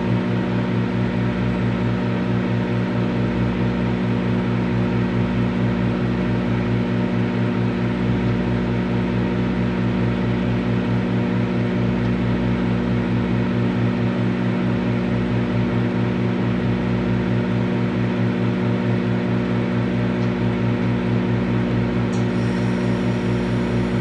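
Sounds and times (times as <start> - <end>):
cooling fan noise: 0.0 - 24.0
microwave oven humming: 0.0 - 24.0.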